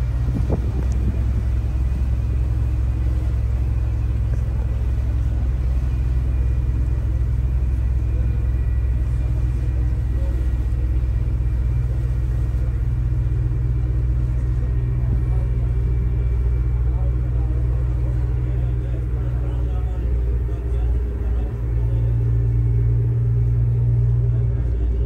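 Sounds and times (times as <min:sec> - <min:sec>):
boat engine droning: 0:00.0 - 0:25.0.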